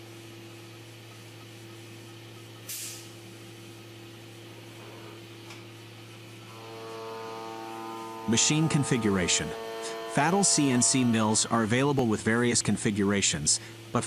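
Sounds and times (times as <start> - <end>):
short sharp hiss: 2.7 - 3.2
milling machine humming: 5.7 - 12.2.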